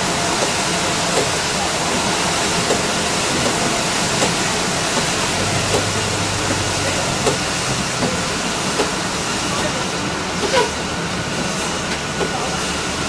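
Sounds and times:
bus engine and tyre noise: 0:00.0 - 0:13.0
windshield wipers ticking: 0:05.0 - 0:06.6.

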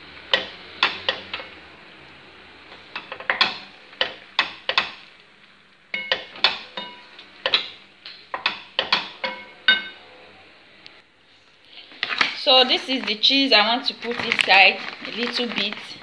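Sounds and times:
utensil clicking against frying pan: 0:00.3 - 0:01.5, 0:03.0 - 0:05.0.

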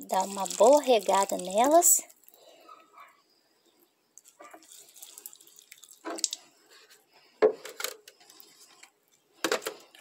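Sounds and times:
water trickling and dripping: 0:00.0 - 0:02.4, 0:04.2 - 0:06.6.

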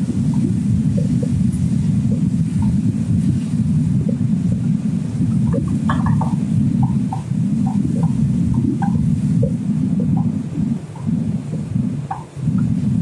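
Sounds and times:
low rumble: 0:00.0 - 0:13.0
spatula tapping frying pan: 0:05.4 - 0:09.0.

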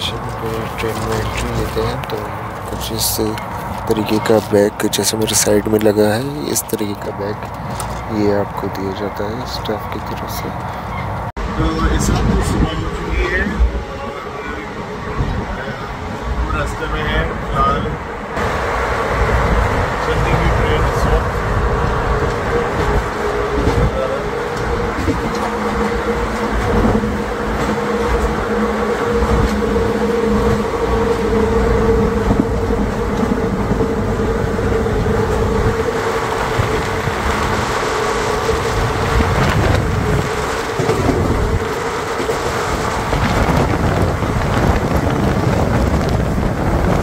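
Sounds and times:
train wheels rumbling on track: 0:00.0 - 0:47.0
rushing air: 0:10.6 - 0:47.0
steady humming tone: 0:11.4 - 0:47.0.

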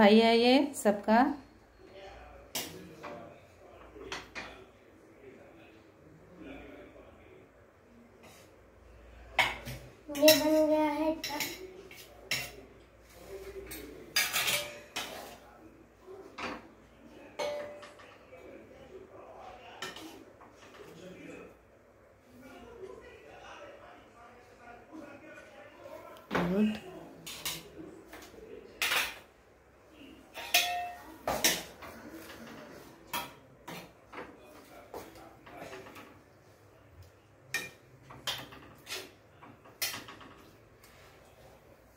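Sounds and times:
metal spoon clinking on steel: 0:14.2 - 0:15.1, 0:30.4 - 0:31.0
metal utensil scraping a pan: 0:30.3 - 0:33.9, 0:37.5 - 0:40.2.

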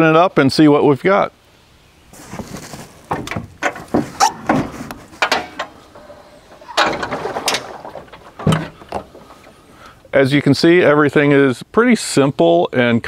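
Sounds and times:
metal clicks and clanks: 0:03.1 - 0:09.2.

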